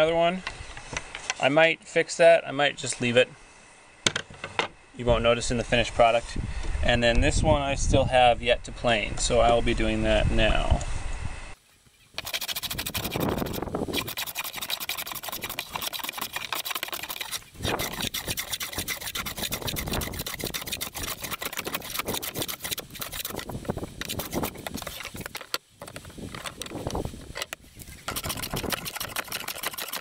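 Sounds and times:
hand plane rasping on wood: 0:12.2 - 0:25.1, 0:28.1 - 0:30.0.

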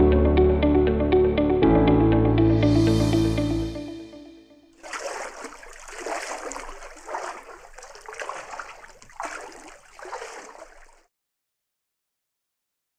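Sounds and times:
water splashing and trickling: 0:04.8 - 0:11.1.

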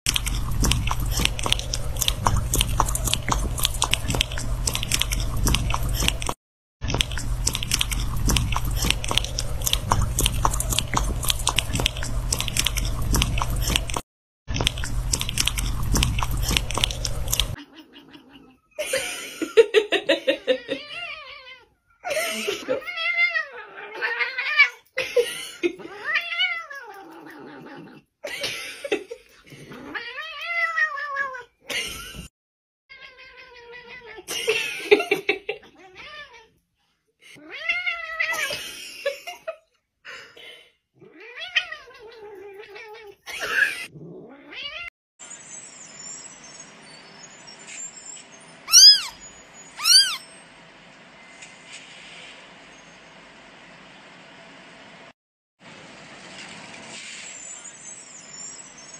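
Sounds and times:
cat yowling: 0:48.7 - 0:49.2, 0:49.8 - 0:50.3
kitten meowing: 0:48.7 - 0:49.2, 0:49.8 - 0:50.3.

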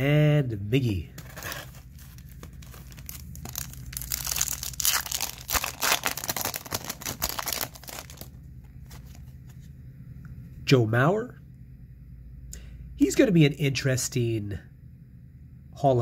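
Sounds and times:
foil wrapper tearing and crinkling: 0:01.2 - 0:09.2.

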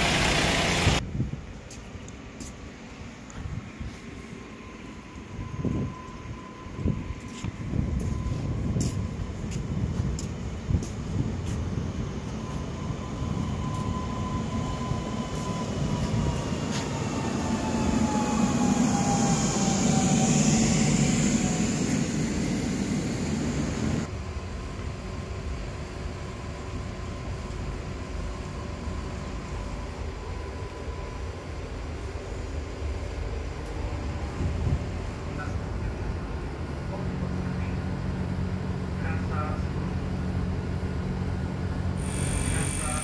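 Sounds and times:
electric train arriving: 0:00.0 - 0:43.0
hum inside train carriage: 0:00.0 - 0:43.0
train motor whine: 0:04.4 - 0:35.8, 0:41.2 - 0:43.0.

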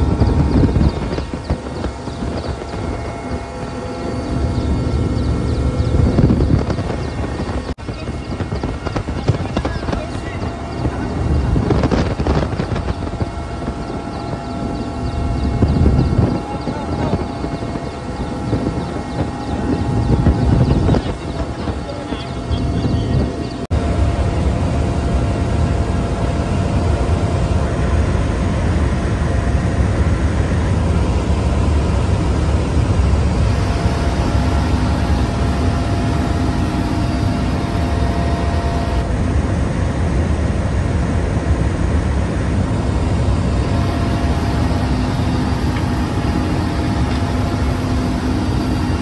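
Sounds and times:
faint steady whine: 0:00.0 - 0:49.0
helicopter engine and rotor drone: 0:00.0 - 0:49.0.

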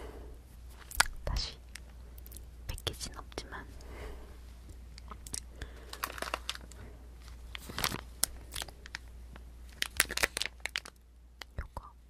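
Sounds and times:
plastic wrapper crinkling: 0:05.0 - 0:11.6.

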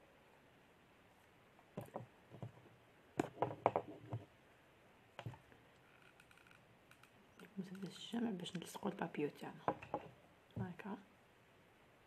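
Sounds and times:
light clicks and knocks on wooden table: 0:01.8 - 0:04.3, 0:09.6 - 0:10.7.

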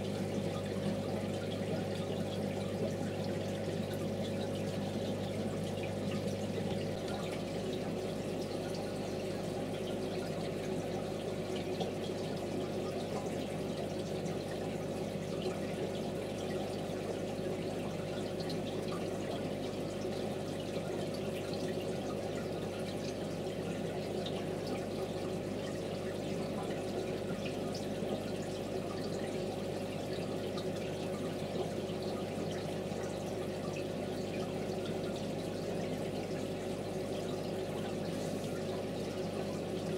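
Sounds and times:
low filter hum: 0:00.0 - 0:11.7
water trickling and dripping: 0:00.0 - 0:39.9.

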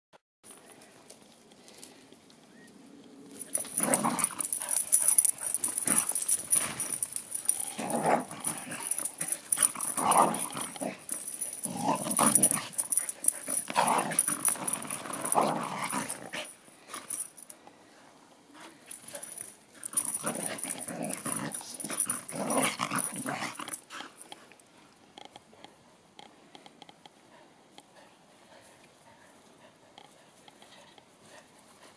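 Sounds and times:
dogs growling: 0:03.4 - 0:17.3, 0:19.0 - 0:24.2.

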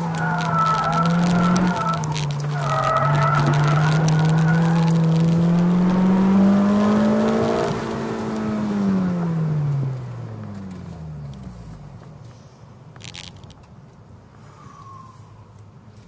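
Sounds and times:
car engine revving at full throttle: 0:00.0 - 0:11.8.

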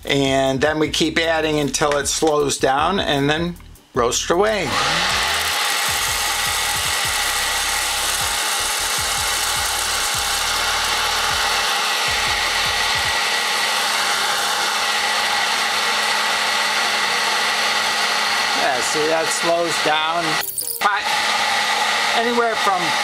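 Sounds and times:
popcorn popper fan humming: 0:04.6 - 0:23.0
coffee beans tumbling: 0:05.2 - 0:12.1.

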